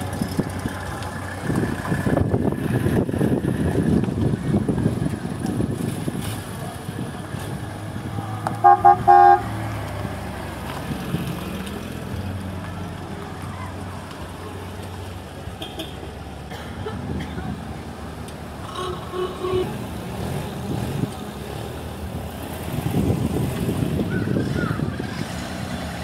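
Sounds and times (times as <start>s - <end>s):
cars driving slowly past: 0.0s - 26.0s
car horn beeps: 8.5s - 9.6s, 18.7s - 19.8s.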